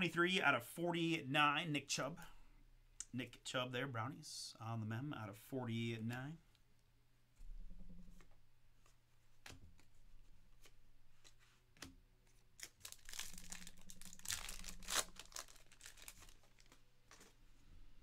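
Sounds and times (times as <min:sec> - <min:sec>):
wrapper crinkling: 0:12.3 - 0:17.4
foil card pack tearing open: 0:12.6 - 0:17.3.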